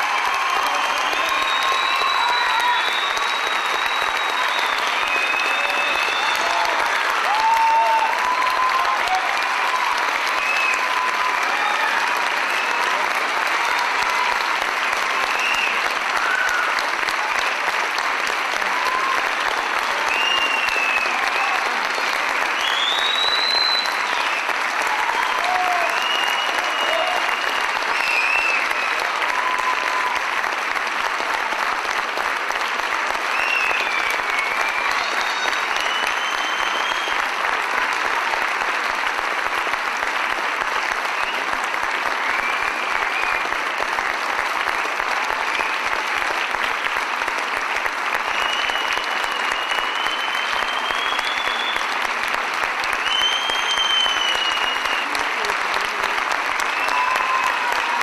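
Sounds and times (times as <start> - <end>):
audience applauding: 0.0 - 58.0
high whistles: 0.5 - 6.6, 15.2 - 16.6, 20.1 - 21.5, 22.6 - 24.6, 25.2 - 30.2, 33.3 - 37.3, 48.2 - 52.0, 53.0 - 55.2.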